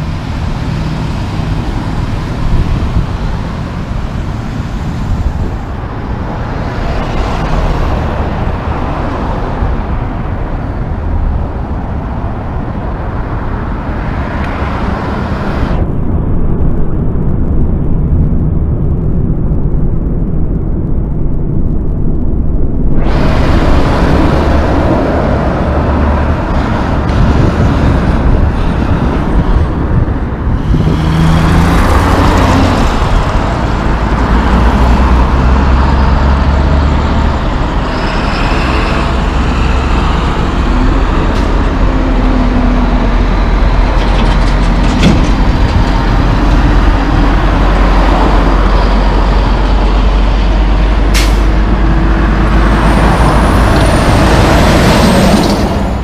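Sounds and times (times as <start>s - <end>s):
tanker truck passing close: 0.0s - 17.7s, 22.9s - 56.0s
diesel trucks running: 0.0s - 56.0s
air brakes: 51.1s - 51.5s.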